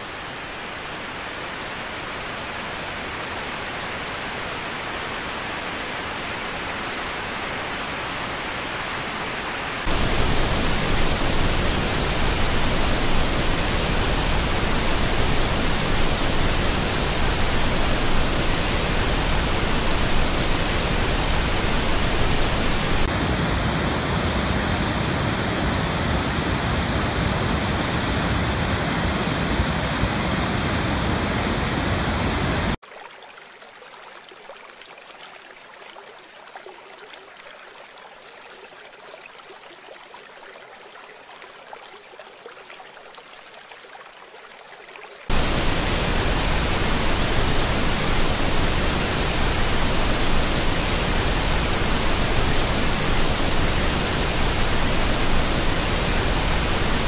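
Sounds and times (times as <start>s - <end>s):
waterfall rushing: 9.9s - 23.2s, 45.3s - 57.0s.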